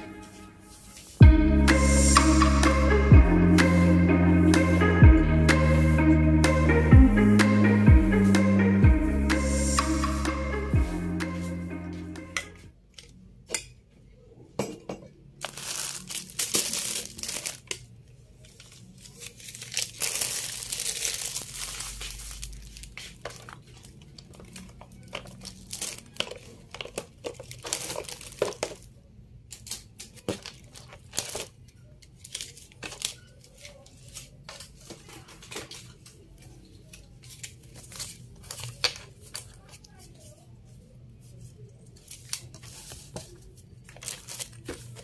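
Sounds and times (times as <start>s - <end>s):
background music: 0.0s - 12.7s
plastic crinkling and rustling: 15.4s - 45.0s.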